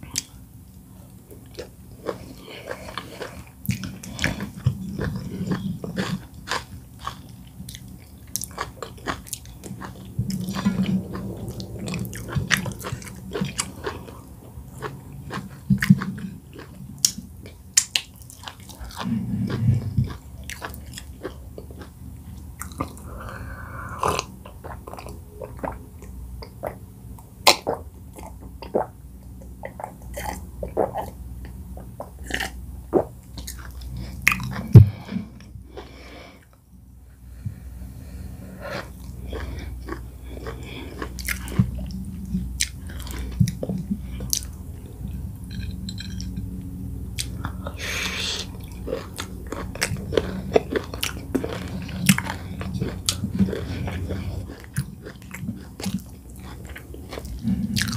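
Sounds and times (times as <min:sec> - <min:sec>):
person chewing food: 0:01.3 - 0:26.9, 0:27.5 - 0:36.6, 0:37.5 - 0:57.9
person humming low: 0:10.1 - 0:15.2.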